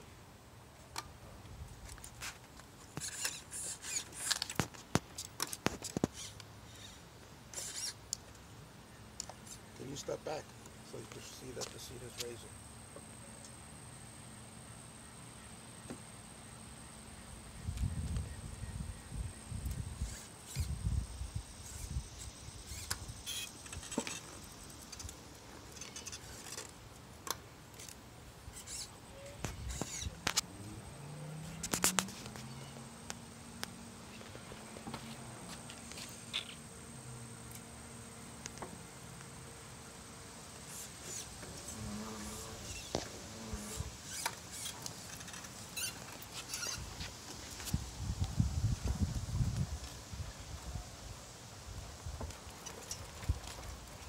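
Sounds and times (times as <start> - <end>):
thin squeaks: 2.9 - 4.6, 5.2 - 8.0, 20.0 - 20.8, 21.6 - 26.8, 27.8 - 30.3, 40.7 - 47.7.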